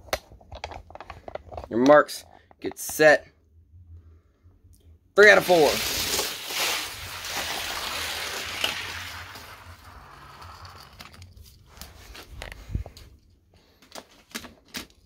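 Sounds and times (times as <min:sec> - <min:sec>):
toy cars rolling down track: 0:07.0 - 0:11.4.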